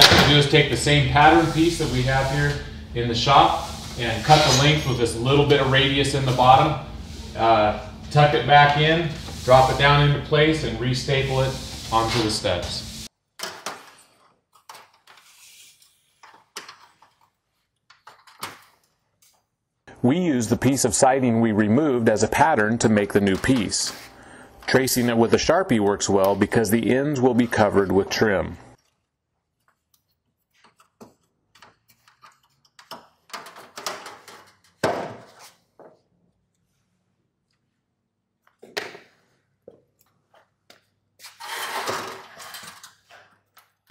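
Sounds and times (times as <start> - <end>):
metal sheet scraping over sheet: 0.0 - 13.1, 41.2 - 43.0.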